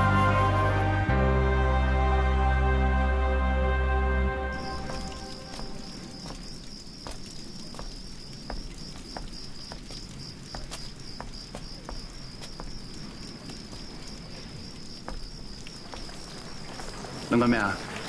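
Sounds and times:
crickets chirping: 4.5 - 18.0.

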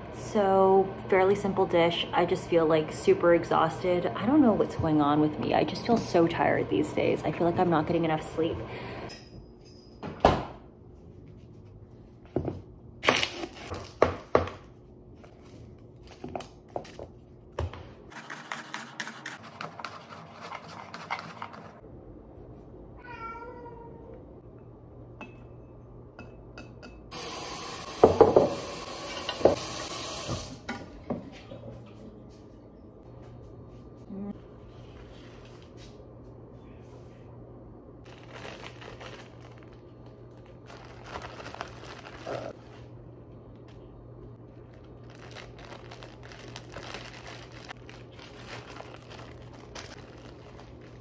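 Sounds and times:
cat meowing: 23.0 - 24.2
kitchen tap running: 27.1 - 30.8.

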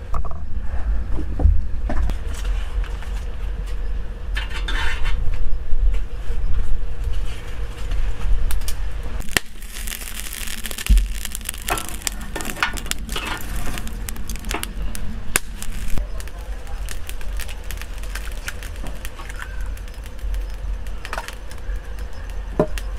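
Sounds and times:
low rumble: 5.3 - 22.9
tongs shifting burning charcoal: 8.5 - 22.9.

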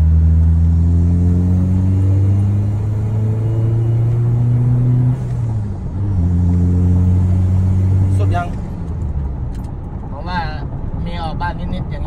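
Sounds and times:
diesel engine accelerating: 0.0 - 12.0.

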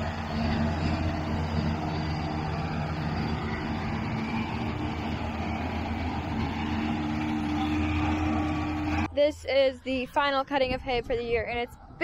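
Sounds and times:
mower drive running: 0.0 - 9.1
tractor engine under load: 0.0 - 9.1.

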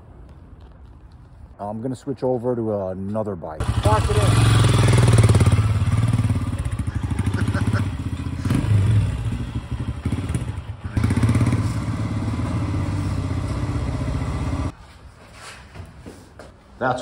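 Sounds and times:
motorcycle engine running slowly: 3.6 - 14.7.

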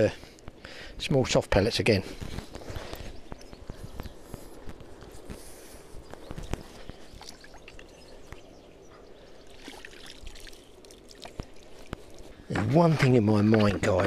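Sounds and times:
water splashing and trickling: 6.8 - 8.2, 9.3 - 12.6.

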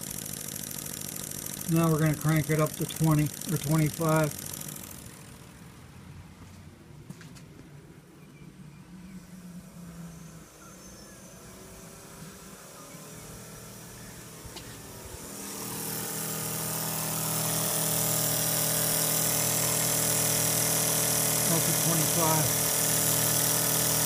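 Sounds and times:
model steam engine running: 0.0 - 5.6, 11.4 - 24.0.

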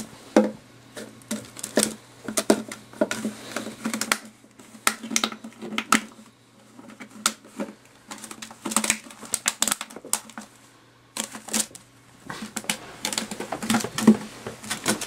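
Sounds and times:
plastic bottles crackling and knocking: 0.0 - 10.6, 11.2 - 15.0.

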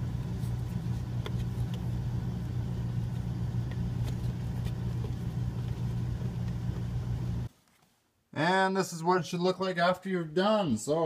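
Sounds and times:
low mechanical hum: 0.0 - 7.7.

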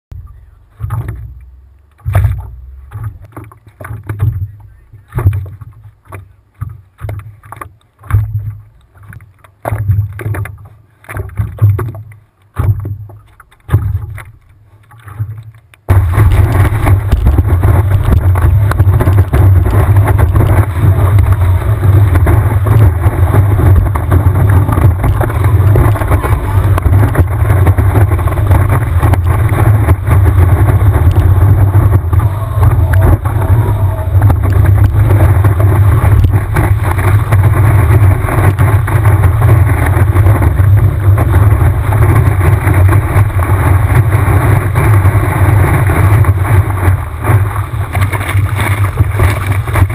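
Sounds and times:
water sloshing against a surfboard: 0.2 - 49.9
wind buffeting a microphone: 15.9 - 49.9.

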